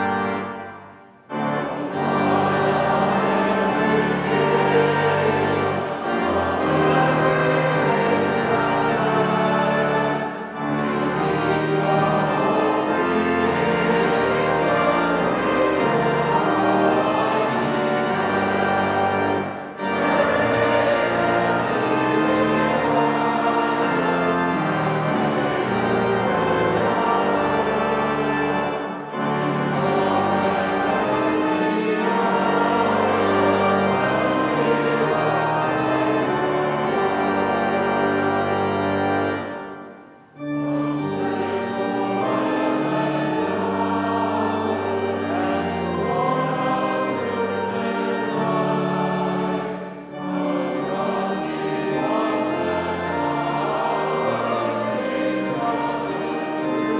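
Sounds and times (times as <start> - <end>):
choir singing a hymn: 0.0 - 56.9
pipe organ: 0.0 - 56.9.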